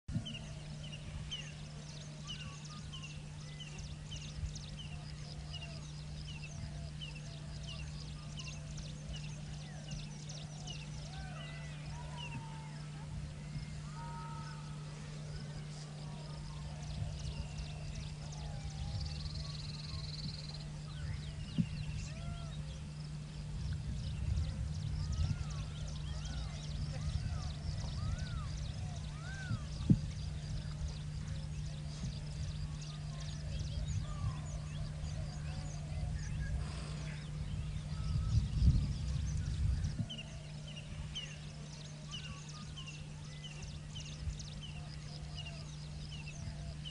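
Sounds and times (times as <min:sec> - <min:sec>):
steady low hum: 0:00.0 - 0:46.9
birds chirping: 0:00.1 - 0:46.9
low bird calls: 0:00.1 - 0:46.9.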